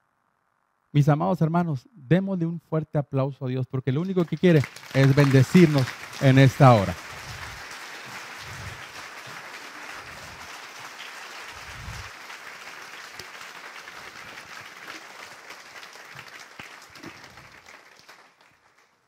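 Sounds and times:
crowd clapping in a large hall: 4.0s - 19.0s.

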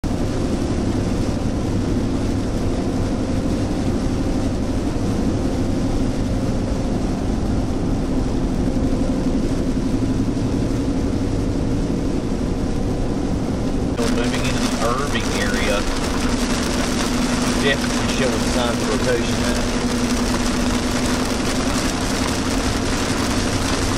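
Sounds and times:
low engine drone: 0.0s - 23.9s
rain on windshield: 0.2s - 12.7s, 13.9s - 23.9s
tyres on flooded road: 14.0s - 23.9s.

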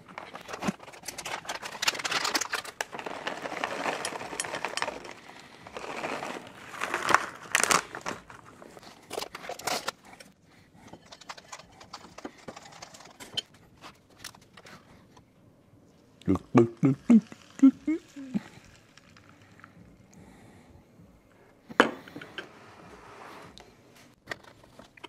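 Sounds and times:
plastic bag crinkling: 0.0s - 10.0s
nuts pattering into bowl: 0.2s - 8.4s.

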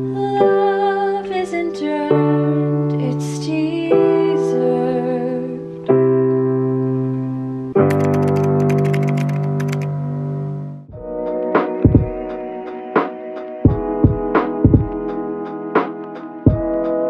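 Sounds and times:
woman singing slowly: 0.0s - 5.8s
digital piano chords: 0.0s - 17.0s.

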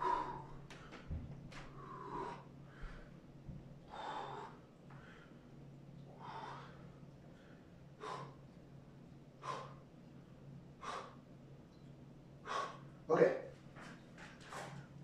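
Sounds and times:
faint steady hum: 0.0s - 15.0s
man breathing out hard: 10.8s - 11.2s.

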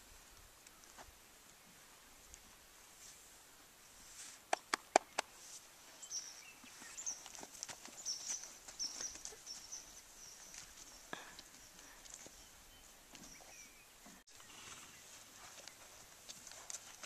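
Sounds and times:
horse footsteps on dirt: 4.5s - 17.0s
person walking on dirt: 4.6s - 17.0s.

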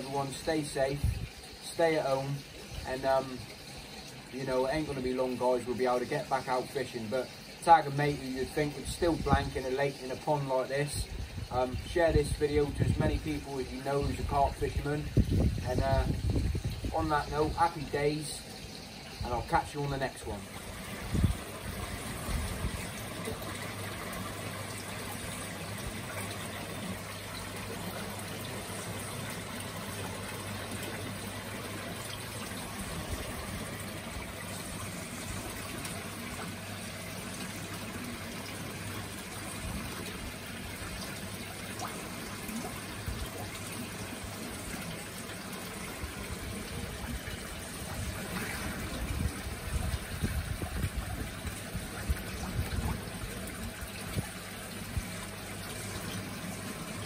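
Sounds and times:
pond water trickling: 0.0s - 57.0s.

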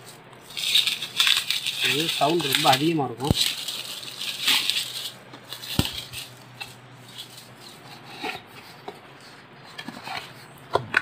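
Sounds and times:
light taps and scrapes: 5.3s - 11.0s.

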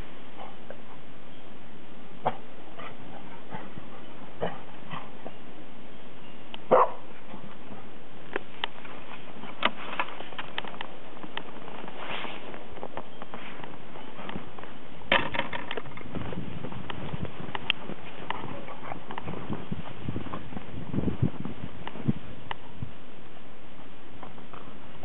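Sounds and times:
background hiss: 0.0s - 25.0s
brief clicks and crunches: 8.3s - 13.8s.

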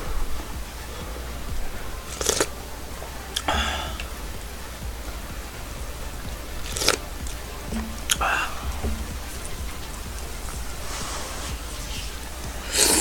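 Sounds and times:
person chewing: 2.1s - 2.5s, 6.6s - 7.1s
person slurping soup: 2.1s - 2.5s, 6.6s - 7.1s, 10.8s - 13.0s.

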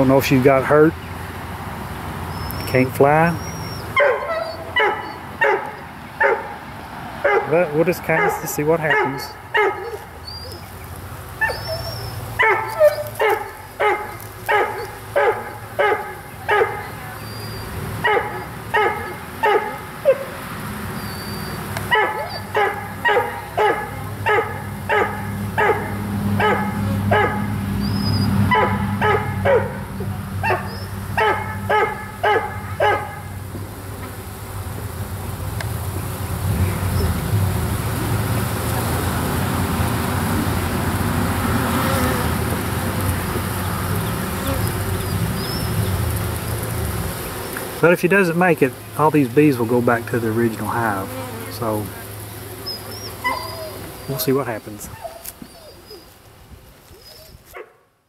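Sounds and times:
bee swarm humming: 0.0s - 57.0s
dog barking: 4.0s - 6.6s, 7.2s - 10.1s, 11.4s - 20.4s, 21.9s - 27.5s, 28.5s - 33.4s, 53.2s - 54.2s, 57.6s - 57.8s.

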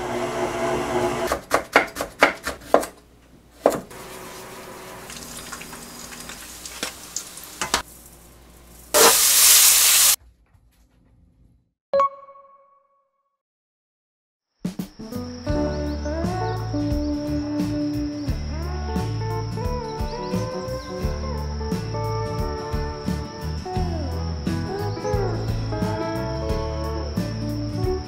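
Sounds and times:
frying sizzle: 3.9s - 10.2s
loud hiss: 8.9s - 10.2s.

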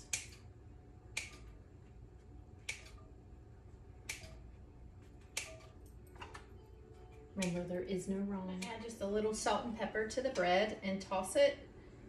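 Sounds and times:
sharp clicks of bread cutting: 0.0s - 0.5s, 5.2s - 6.4s.

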